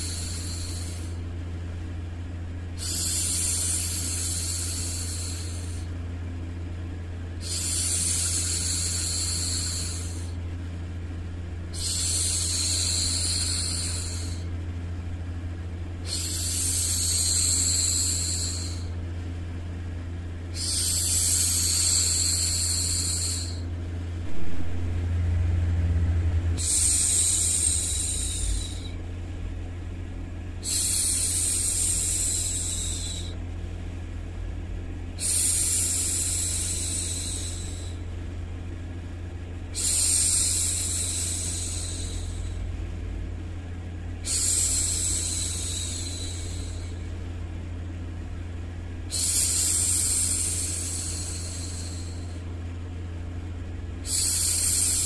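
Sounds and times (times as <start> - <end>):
low white-noise hum: 0.0 - 55.0.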